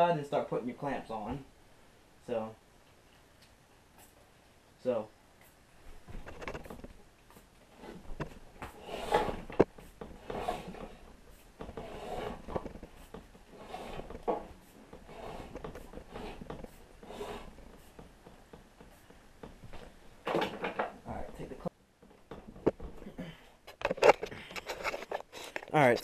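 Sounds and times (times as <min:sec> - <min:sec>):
plastic clamps rubbing and clattering: 0:06.0 - 0:23.1, 0:23.7 - 0:25.7.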